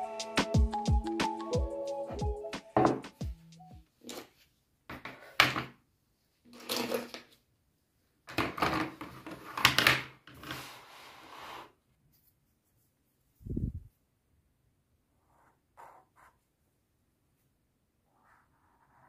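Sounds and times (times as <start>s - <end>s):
pens rattling on a desk: 8.3s - 10.7s.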